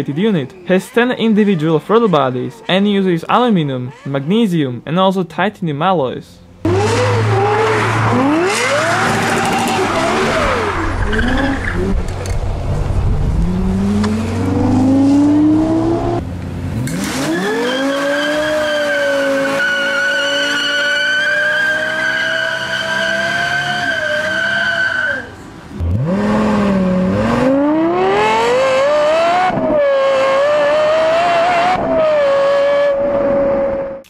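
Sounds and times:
car engine revving hard: 6.6s - 12.0s, 12.9s - 25.0s, 25.8s - 34.0s
tyres squealing: 17.3s - 25.4s.

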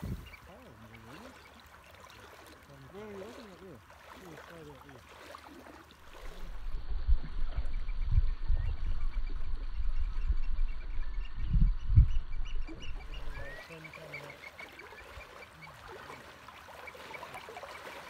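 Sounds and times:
wind buffeting microphone: 0.0s - 0.4s, 6.1s - 13.8s
gulls calling: 0.0s - 6.3s, 7.7s - 18.0s.

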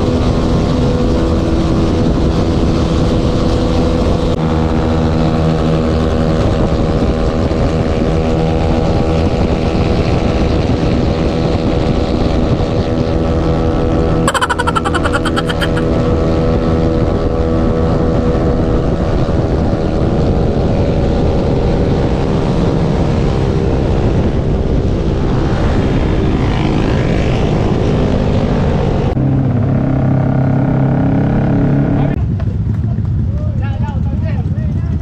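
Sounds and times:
wind rush on microphone: 0.0s - 14.0s, 16.9s - 29.2s
motorcycle engines running: 17.4s - 35.0s.

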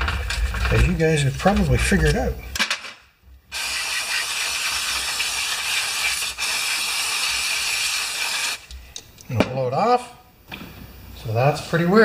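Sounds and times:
pressurised jet hissing: 3.5s - 8.7s.

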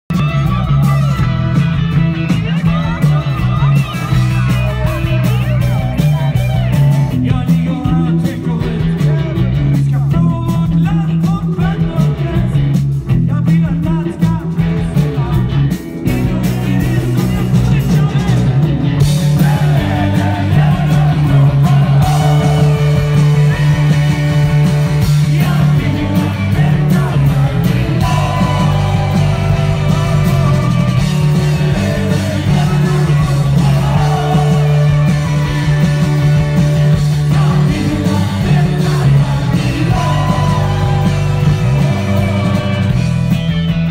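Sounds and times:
live rock band playing: 0.1s - 43.9s
person singing: 19.3s - 43.1s.

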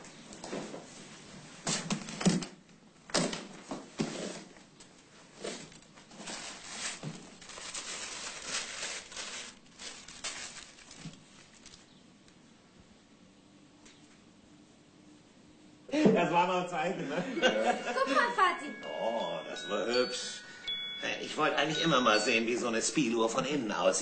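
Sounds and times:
rustling of items: 0.1s - 2.6s, 3.2s - 12.4s.

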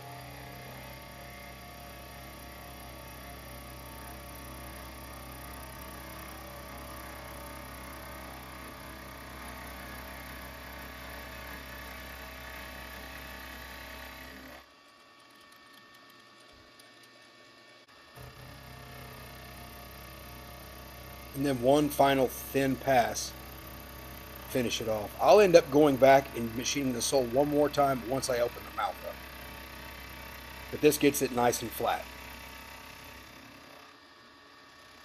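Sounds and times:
milling machine motor hum: 0.0s - 35.0s
cutter scraping metal: 14.0s - 34.0s.

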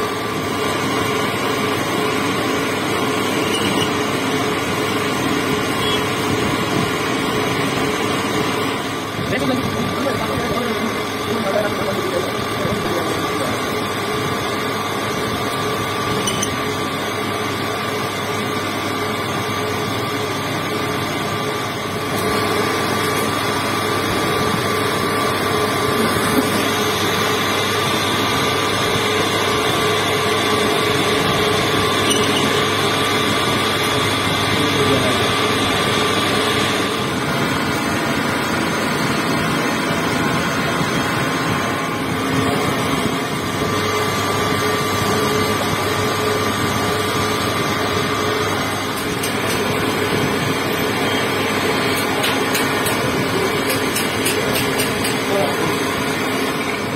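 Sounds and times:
metal lathe running: 0.0s - 56.9s
high-pitched tone: 3.3s - 4.0s, 16.1s - 16.7s, 31.9s - 32.7s.

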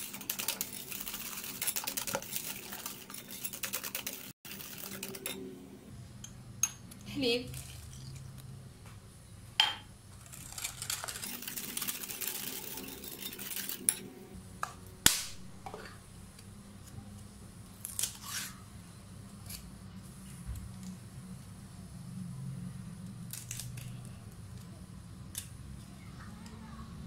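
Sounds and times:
whisk swishing in glass bowl: 0.0s - 5.4s, 11.1s - 14.0s.

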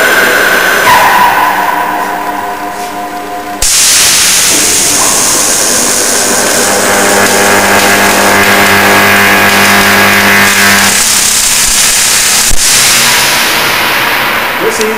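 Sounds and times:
mains hum: 0.0s - 14.9s
electric arc buzzing hiss: 1.6s - 14.9s
sharp electric snap: 3.6s - 14.9s.

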